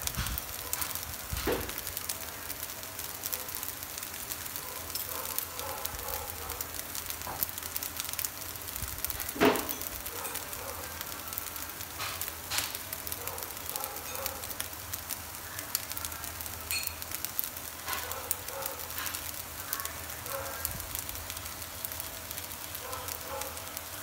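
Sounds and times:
fried rice sizzling in a pan: 0.0 - 24.0.

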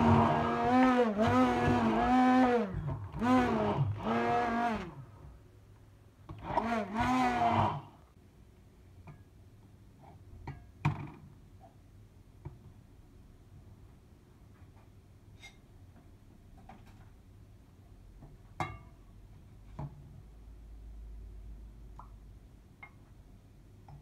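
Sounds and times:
stick blender whirring: 0.0 - 5.1, 6.3 - 8.1.

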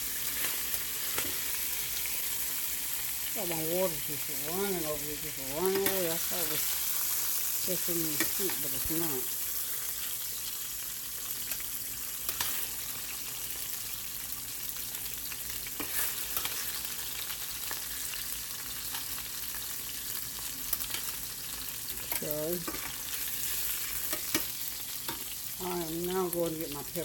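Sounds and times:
chicken sizzling in hot oil: 0.0 - 27.0
metal tongs clicking on pan: 5.6 - 6.1, 8.1 - 9.0, 12.3 - 12.6, 20.7 - 21.1, 22.0 - 24.5.

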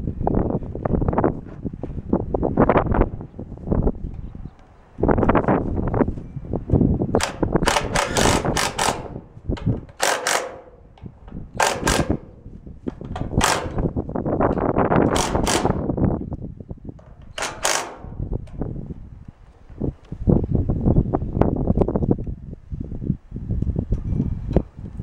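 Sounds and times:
impact driver driving screws into metal: 7.2 - 10.8, 11.6 - 12.4, 13.0 - 13.9, 15.0 - 15.9, 17.1 - 18.3.

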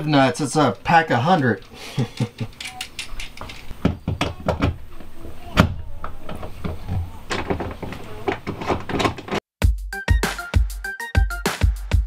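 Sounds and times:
hands handling hardware and tools: 0.2 - 9.4.

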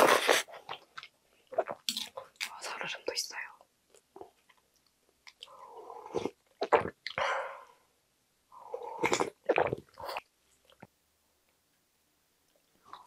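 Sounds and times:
slurping broth and noodles: 0.0 - 0.8, 5.4 - 7.0.

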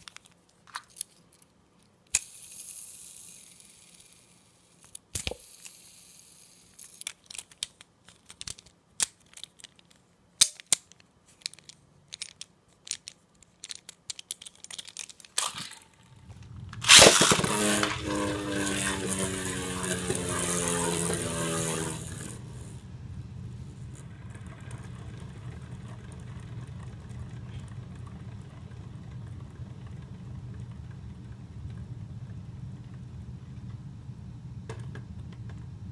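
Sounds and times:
plastic parts clicking: 0.0 - 2.5, 4.8 - 5.8, 6.6 - 22.4
spinning top whirring in stadium: 2.1 - 6.9, 15.4 - 33.9
spinning top launch burst: 15.4 - 22.8.

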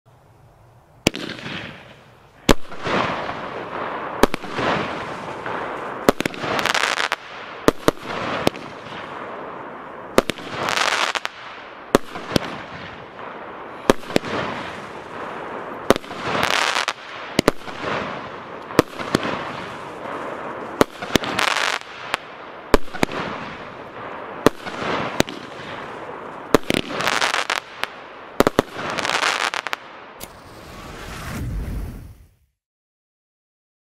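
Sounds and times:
crackling hiss of fireworks stars: 0.2 - 32.4
fireworks sharp reports: 1.0 - 32.2.

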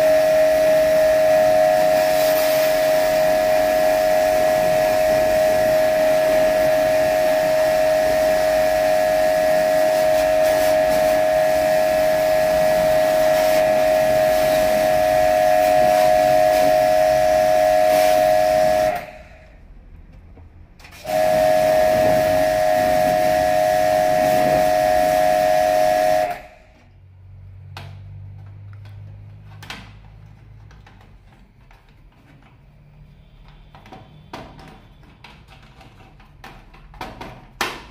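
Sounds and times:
water jet hissing: 0.0 - 19.6, 20.9 - 26.8
pressure washer whine: 0.0 - 19.7, 20.9 - 26.9.

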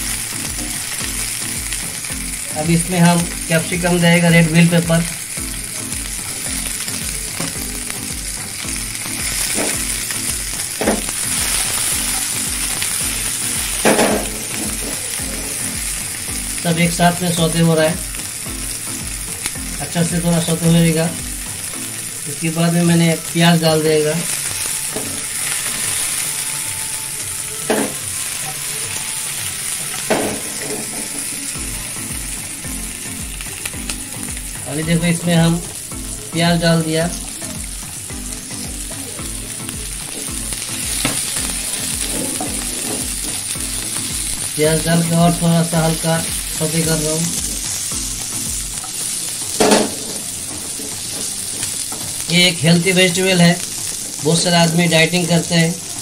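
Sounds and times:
vegetables sizzling in a frying pan: 0.0 - 56.0
spatula stirring in pan: 47.2 - 52.4.

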